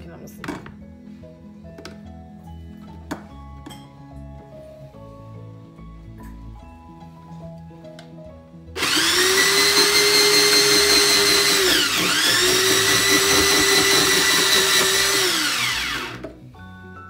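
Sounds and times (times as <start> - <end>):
electric slicer motor whining: 8.8 - 16.2.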